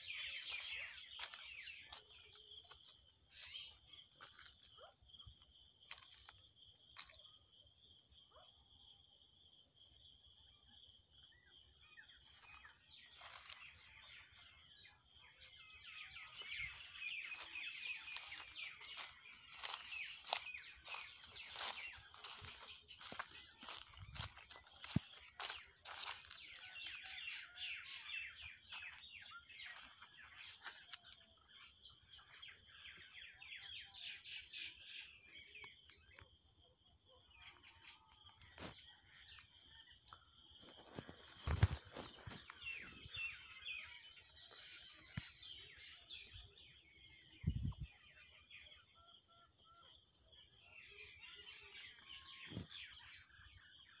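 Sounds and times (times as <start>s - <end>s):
crickets trilling: 0.0s - 54.0s.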